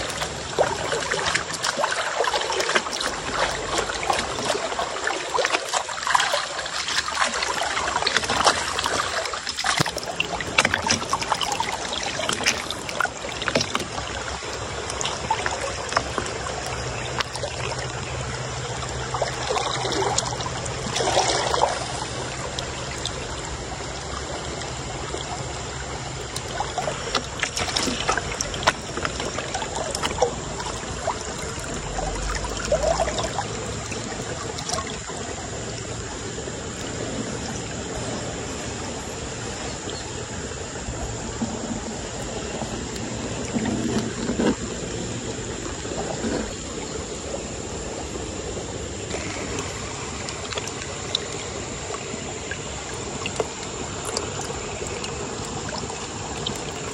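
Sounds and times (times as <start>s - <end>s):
water sloshing in gold pan: 0.0s - 38.2s
stream running: 0.0s - 56.9s
water splashes: 0.0s - 56.9s.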